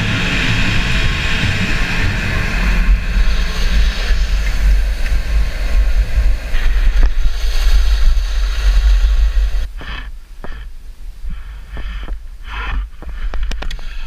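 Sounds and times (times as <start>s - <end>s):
wind buffeting microphone: 0.0s - 14.0s
skis hissing over snow: 2.4s - 10.7s, 11.3s - 14.0s.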